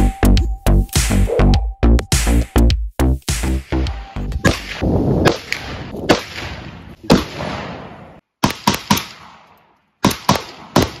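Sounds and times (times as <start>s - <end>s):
gunshots echoing: 4.4s - 11.0s.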